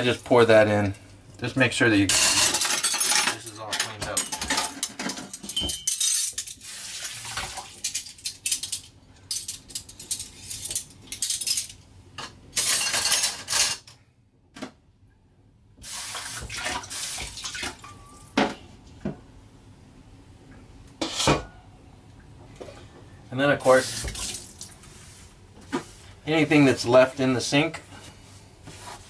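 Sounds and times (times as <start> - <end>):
crockery and cutlery clinking: 2.0 - 6.5
tap water splashing over dishes: 6.8 - 8.0, 15.8 - 18.0, 24.0 - 24.8.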